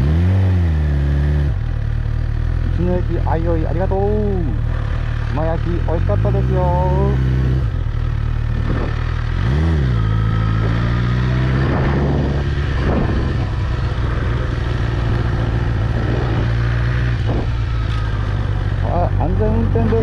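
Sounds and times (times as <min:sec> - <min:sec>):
motorcycle engine running: 0:00.0 - 0:20.0.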